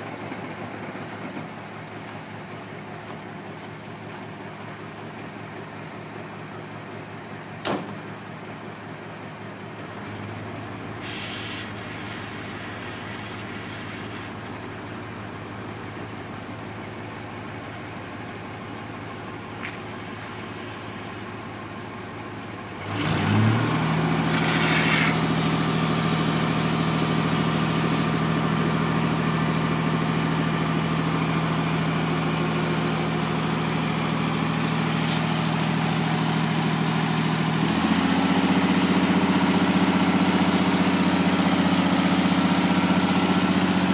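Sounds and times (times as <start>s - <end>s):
diesel engine idling and revving: 0.0s - 43.9s
water hissing from hose nozzle: 11.0s - 14.6s, 19.7s - 21.4s.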